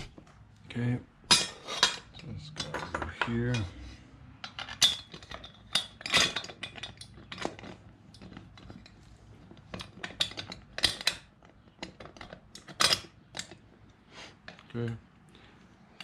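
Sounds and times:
metal clinks and rattles: 4.4s - 13.6s.

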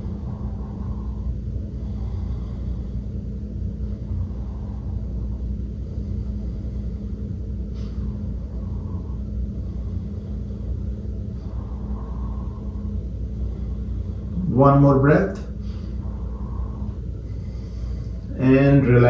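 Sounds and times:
constant low hum: 0.0s - 19.0s
steady low rumble: 0.0s - 19.0s.

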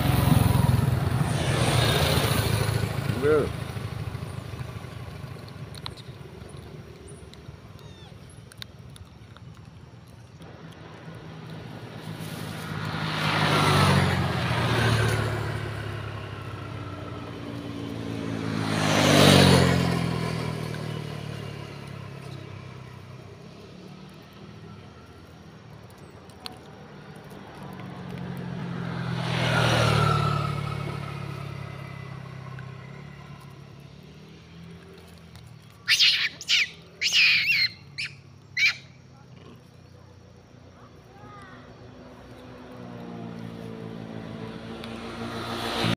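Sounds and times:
vehicles passing by: 0.0s - 45.9s
short high-pitched calls: 35.8s - 39.0s.

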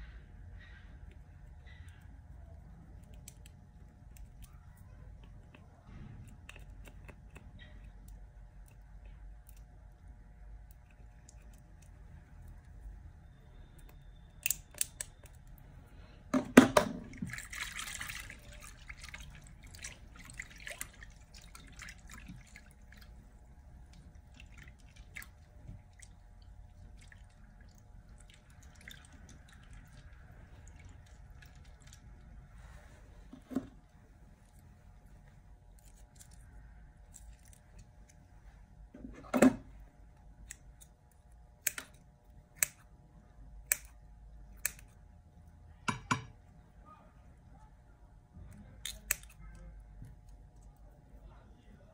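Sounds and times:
hand stirring water: 16.9s - 38.2s
scissors clicking in bowl: 43.6s - 43.9s.

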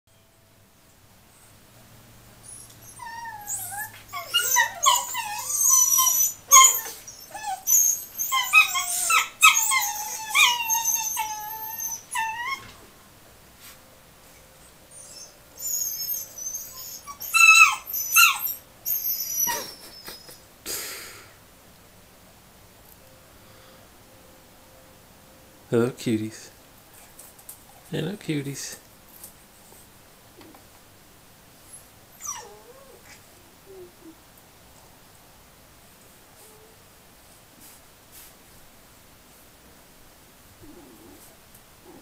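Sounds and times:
puppies yipping and squealing: 2.4s - 12.8s, 14.9s - 20.5s, 31.7s - 33.2s.

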